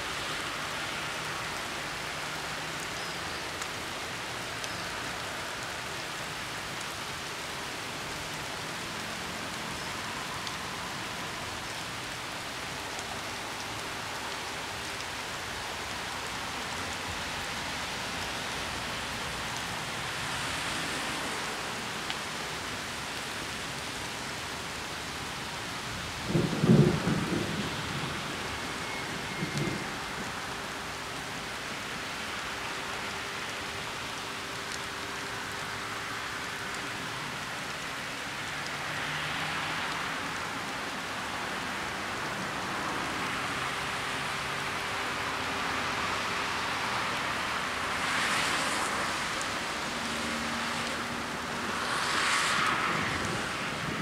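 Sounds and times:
steady rain hiss: 0:00.0 - 0:54.0
thunder rumble: 0:26.3 - 0:30.1.

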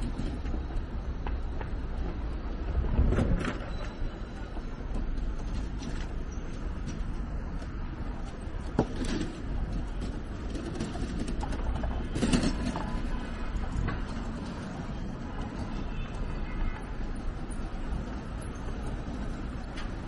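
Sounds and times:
traffic rumble: 0:00.0 - 0:20.0
clicks and clatter: 0:03.0 - 0:16.2.

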